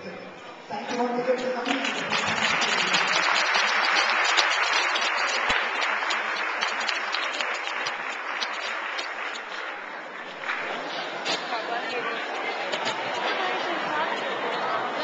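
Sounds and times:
audience applauding: 1.6 - 11.4.

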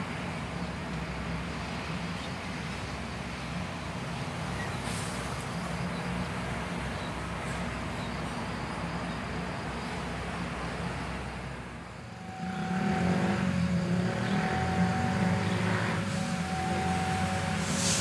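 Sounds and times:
diesel locomotive engine hum: 0.0 - 18.0
high-pitched tones: 12.0 - 18.0.

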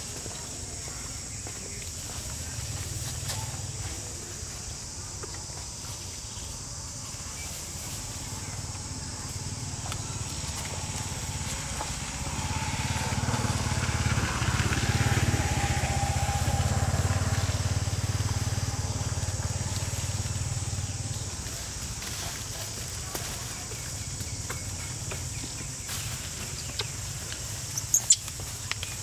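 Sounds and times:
insects buzzing: 0.0 - 29.0
vehicle passing by: 8.0 - 21.8.

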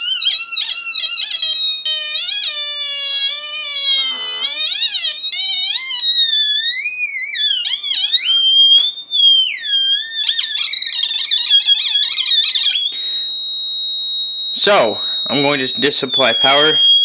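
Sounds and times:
electronic tone sliding in pitch: 14.6 - 17.0.

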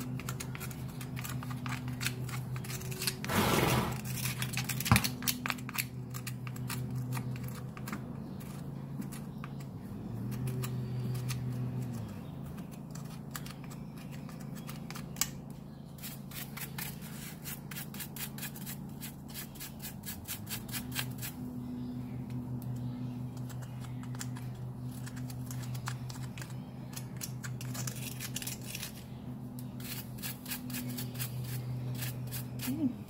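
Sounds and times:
hoof pick brush scraping hoof: 3.2 - 4.1
low hum: 18.7 - 33.0.

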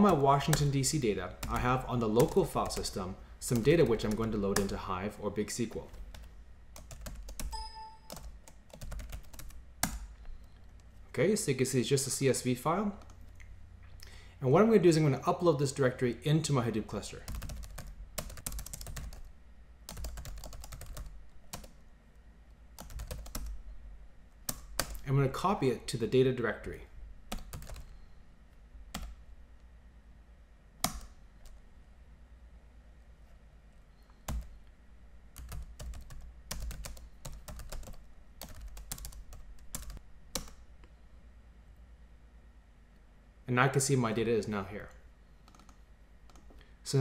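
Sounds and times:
faint low hum: 0.0 - 47.0
typing on computer keyboard: 5.9 - 10.6, 17.3 - 19.3, 19.9 - 21.8, 22.8 - 23.6, 27.3 - 27.9, 35.4 - 40.6, 45.5 - 46.5.

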